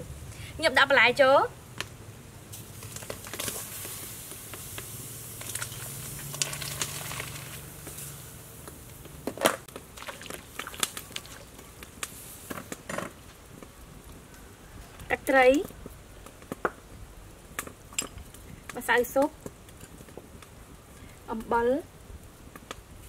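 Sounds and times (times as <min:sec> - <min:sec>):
fire crackling: 0:00.0 - 0:23.0
vegetables dropped into boiling water: 0:02.5 - 0:08.1, 0:08.7 - 0:13.2
plastic bag crinkling: 0:02.6 - 0:04.0, 0:05.4 - 0:08.1.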